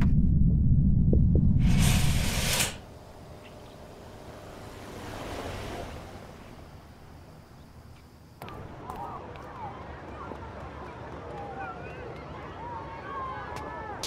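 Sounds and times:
loud low rumble: 0:00.0 - 0:02.6.

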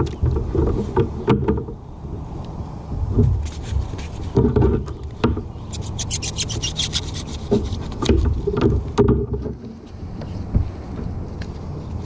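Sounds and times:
rapid scratchy ticks: 0:05.7 - 0:08.2
gear knocking on plastic deck: 0:07.4 - 0:09.7.

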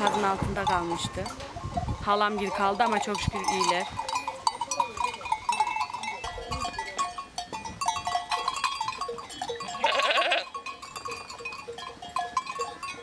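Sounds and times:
small bells clinking: 0:00.0 - 0:13.0
sheep bleating: 0:09.7 - 0:10.5.

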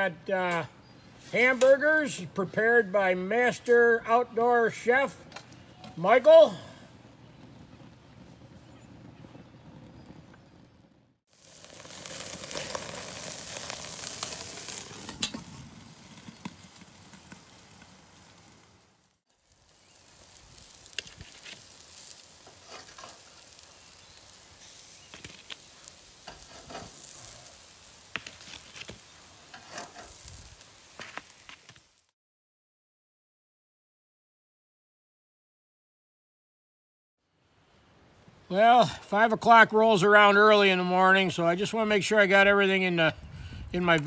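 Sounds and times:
patties sizzling on grill: 0:11.3 - 0:32.1.

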